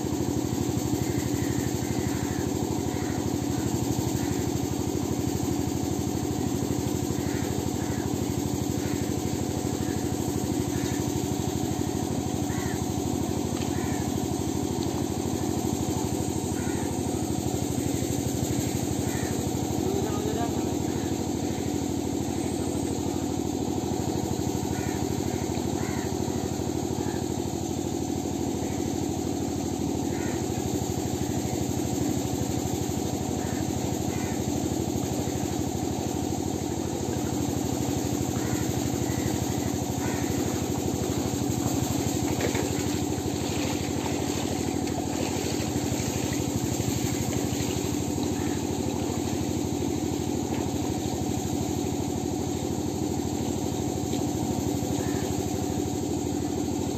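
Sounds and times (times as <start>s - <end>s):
small engine running steadily: 0.0s - 56.9s.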